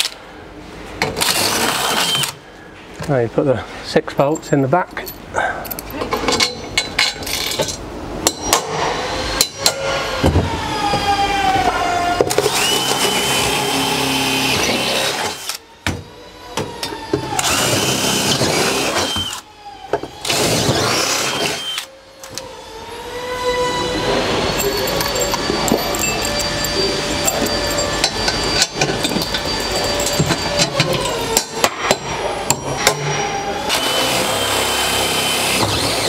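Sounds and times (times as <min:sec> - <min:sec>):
cordless drill whining: 0:01.2 - 0:02.4, 0:12.3 - 0:15.6, 0:16.2 - 0:31.4, 0:33.6 - 0:36.0.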